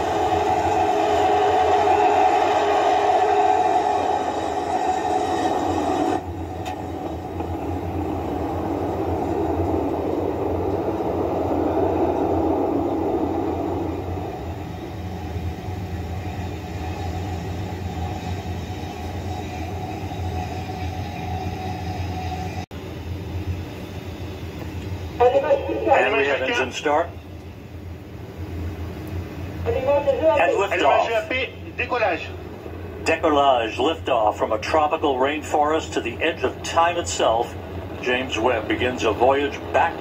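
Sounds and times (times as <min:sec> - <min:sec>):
rocket engines roaring: 0:00.0 - 0:40.0
steady low hum: 0:00.0 - 0:40.0.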